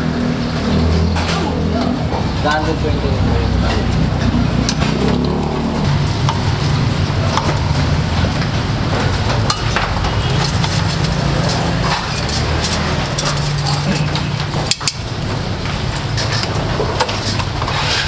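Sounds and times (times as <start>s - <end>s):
metal utensils clinking on pot: 9.0s - 18.0s.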